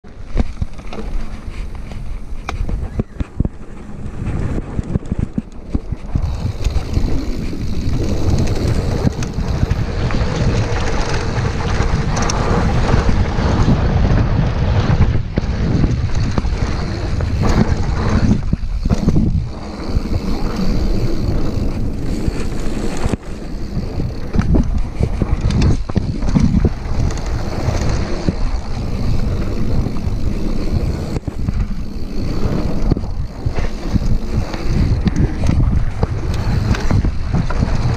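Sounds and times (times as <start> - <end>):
bike knocking and rattling: 0.0 - 37.9
bike tyres on dirt: 0.0 - 37.9
wind buffeting microphone: 0.0 - 37.9.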